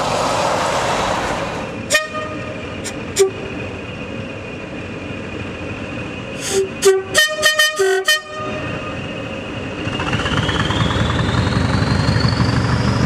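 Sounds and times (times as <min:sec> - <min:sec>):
locomotive engine approaching: 0:00.0 - 0:13.0
locomotive horn toots: 0:01.9 - 0:03.7, 0:06.4 - 0:09.1
rising whine: 0:07.8 - 0:13.0.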